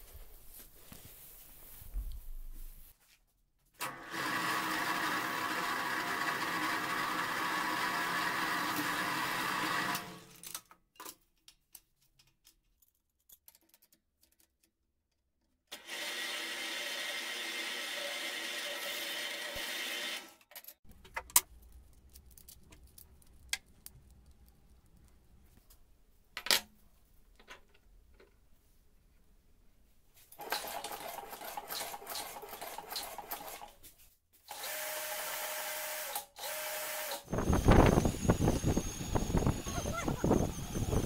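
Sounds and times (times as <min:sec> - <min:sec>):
drill press drilling steel: 0:03.8 - 0:10.3, 0:15.7 - 0:20.4
small metal parts clicking: 0:10.3 - 0:15.5, 0:20.4 - 0:25.2.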